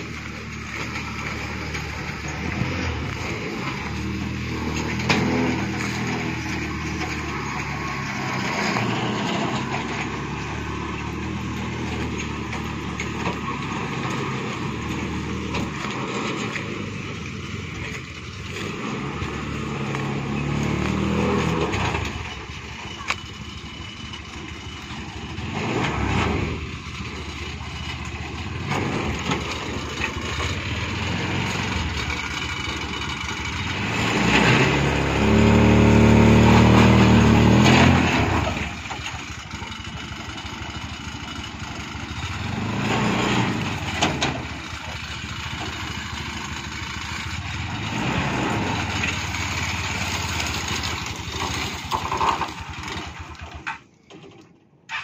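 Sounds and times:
petrol engine running at low revs: 0:00.0 - 0:53.6.

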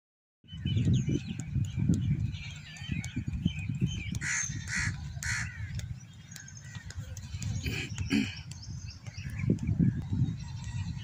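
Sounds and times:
small birds chirping: 0:00.4 - 0:11.0
wind buffeting microphone: 0:00.4 - 0:11.0
crow cawing: 0:04.2 - 0:05.7.

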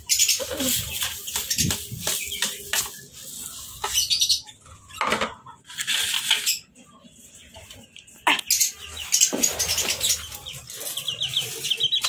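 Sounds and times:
sawdust rustling and scraping: 0:00.1 - 0:04.5, 0:08.9 - 0:12.0.

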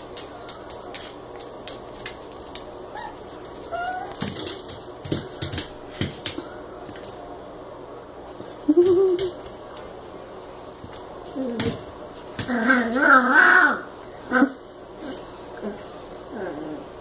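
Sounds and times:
dog toenails clicking on tile: 0:00.0 - 0:07.2
puppy whimpering: 0:02.9 - 0:04.2.

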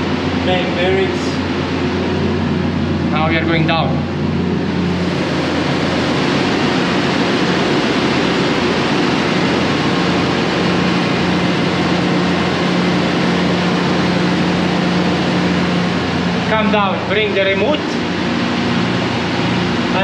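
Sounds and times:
diesel engine room noise: 0:00.0 - 0:20.0.

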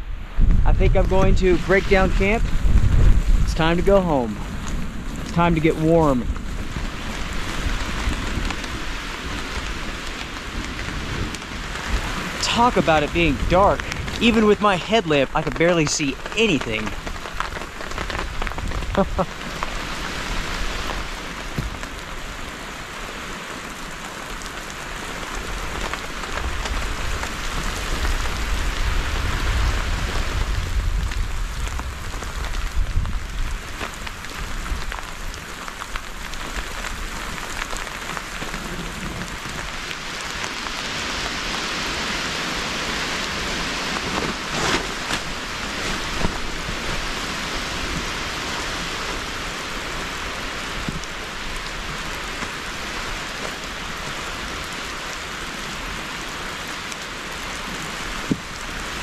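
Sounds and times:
deep low rumble: 0:00.0 - 0:05.4
steady rain in forest: 0:00.0 - 0:59.0.

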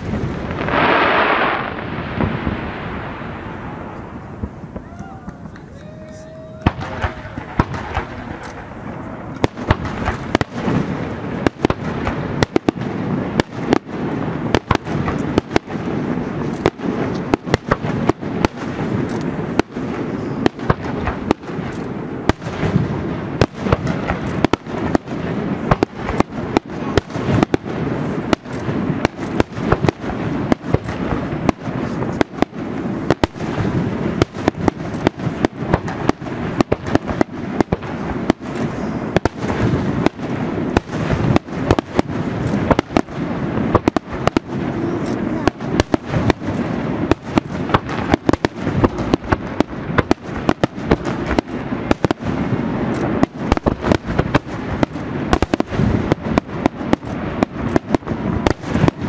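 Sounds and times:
firework shells bursting: 0:00.0 - 0:59.0
continuous low rumble: 0:02.8 - 0:12.4.

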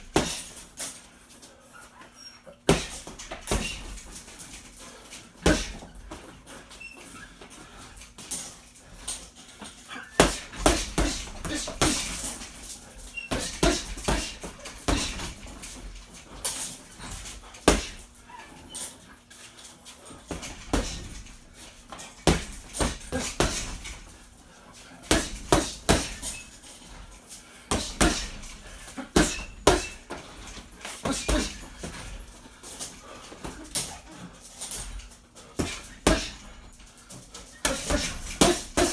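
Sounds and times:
gloves punching heavy bag: 0:00.0 - 0:00.7, 0:02.6 - 0:04.7, 0:05.3 - 0:06.2, 0:10.0 - 0:18.2, 0:20.3 - 0:24.2, 0:25.0 - 0:26.6, 0:27.7 - 0:32.2, 0:34.9 - 0:36.8, 0:37.5 - 0:38.9.

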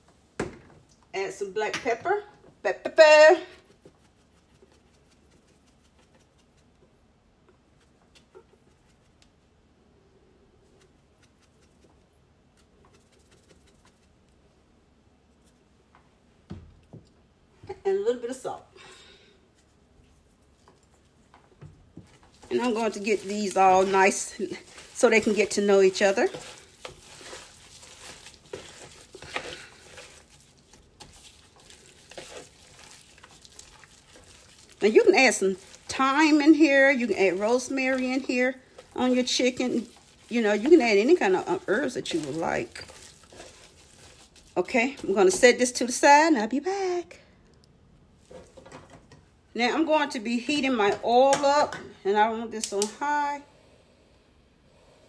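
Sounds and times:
squishing of raw chicken: 0:03.5 - 0:09.4, 0:10.6 - 0:14.5, 0:19.4 - 0:45.9.

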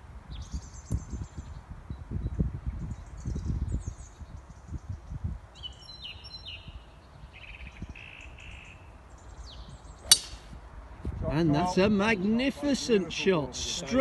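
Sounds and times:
wind rumble on microphone: 0:00.0 - 0:12.3
birds singing: 0:00.3 - 0:10.7
golf club striking ball: 0:10.0 - 0:10.6.

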